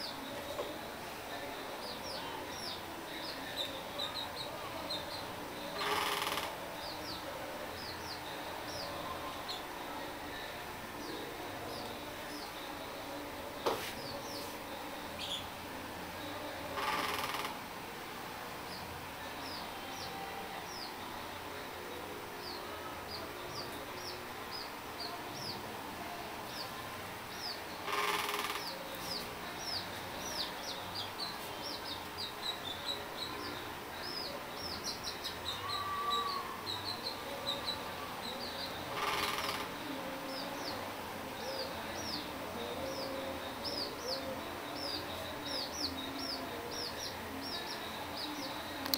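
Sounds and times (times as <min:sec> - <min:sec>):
small birds chirping: 0:10.3 - 0:15.6, 0:18.7 - 0:25.7, 0:26.4 - 0:48.9.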